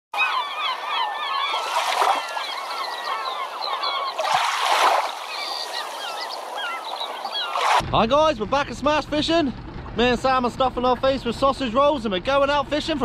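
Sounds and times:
flock of birds calling: 0.2s - 7.8s.

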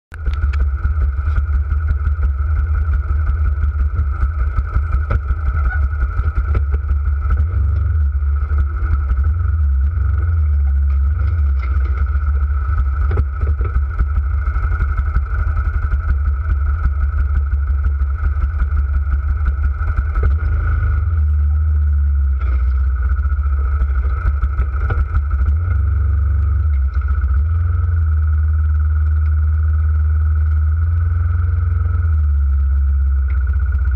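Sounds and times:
atv engine idling: 0.1s - 33.9s.

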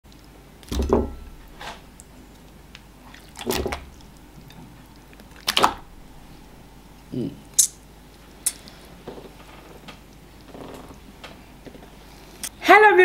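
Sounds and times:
thick soup splatting wetly: 3.0s - 4.4s, 5.0s - 6.4s.

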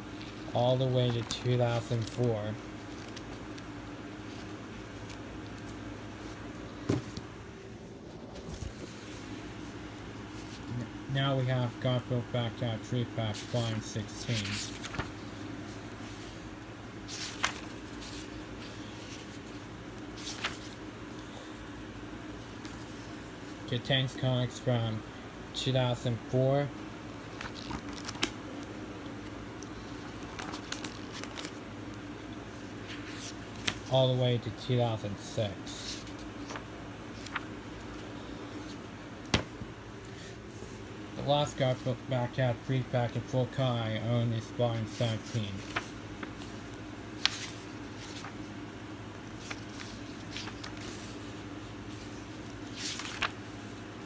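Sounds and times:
paper pages rustling: 0.0s - 7.3s, 8.0s - 10.9s, 11.5s - 16.4s, 17.0s - 21.5s, 27.2s - 34.3s, 35.7s - 40.8s, 44.5s - 54.0s
steady low hum: 0.0s - 54.0s.

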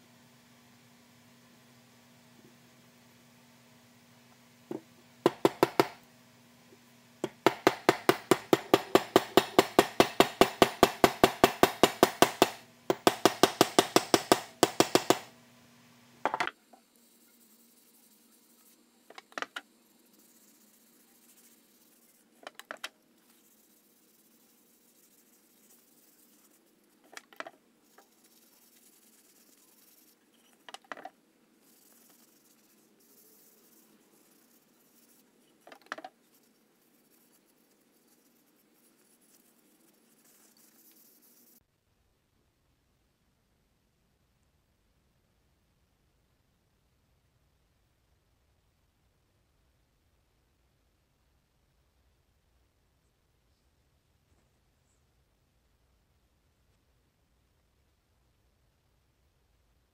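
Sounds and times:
faint hiss: 0.0s - 59.9s
stick tapping metal hammer head: 7.2s - 15.3s.

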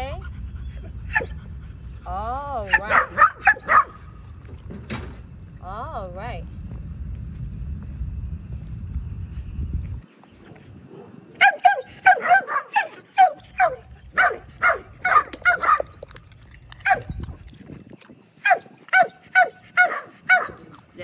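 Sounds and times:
dog yipping: 0.7s - 1.4s, 2.6s - 4.0s, 11.4s - 16.2s, 16.8s - 17.4s, 18.4s - 20.9s.

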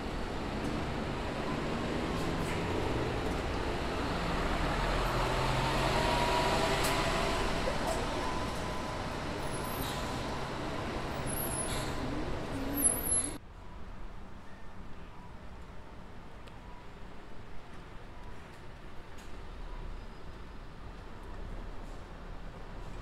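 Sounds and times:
bus engines running: 0.0s - 13.4s
road noise: 0.0s - 13.4s.

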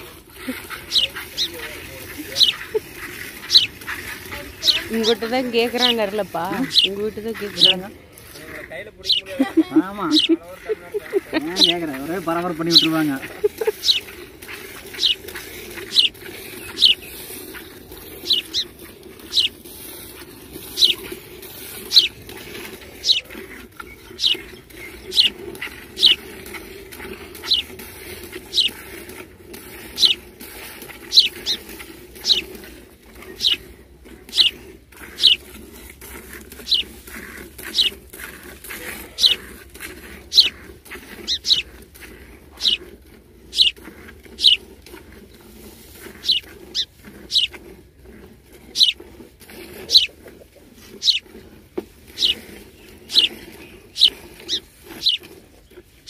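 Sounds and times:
milk squirting into metal pail: 10.4s - 47.1s.

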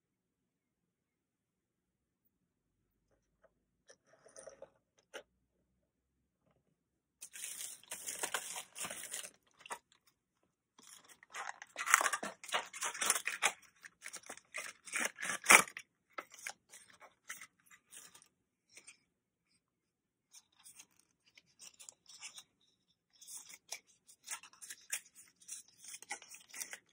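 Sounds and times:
packaging rustling and crinkling: 7.2s - 10.0s, 10.8s - 18.2s.

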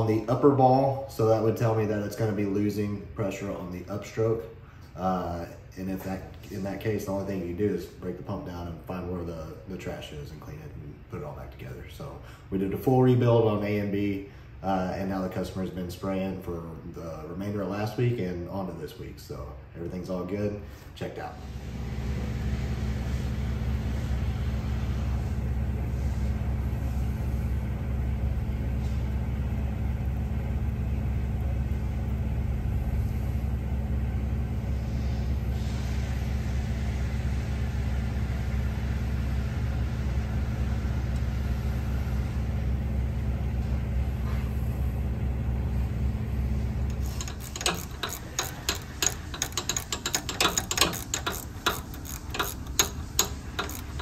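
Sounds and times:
low machine hum: 0.0s - 54.0s
ratchet wrench clicking: 46.9s - 54.0s.

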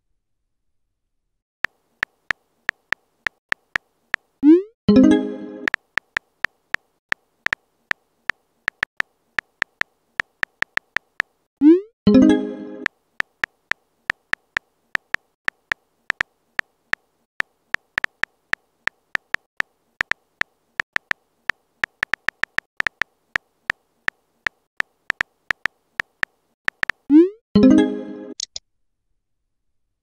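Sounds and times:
keyboard tap clicks: 8.7s - 11.3s, 17.8s - 21.2s, 21.8s - 23.1s, 24.5s - 26.1s, 26.7s - 27.1s.

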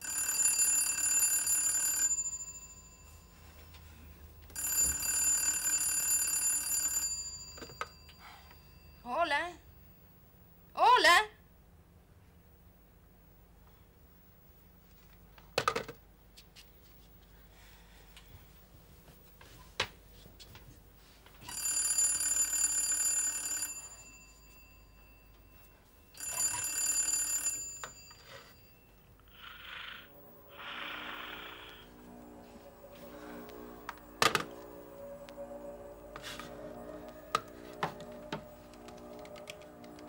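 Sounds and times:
telephone bell ringing: 0.0s - 3.9s, 4.5s - 9.1s, 21.4s - 35.9s.

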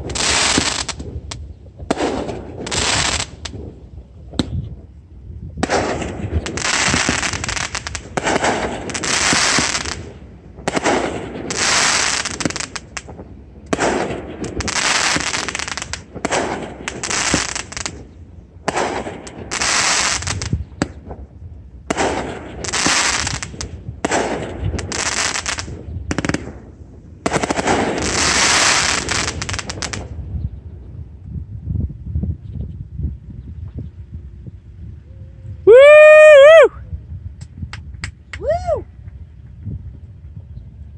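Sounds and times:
fireworks crackling: 0.0s - 30.3s
fireworks bursting: 0.0s - 30.4s.

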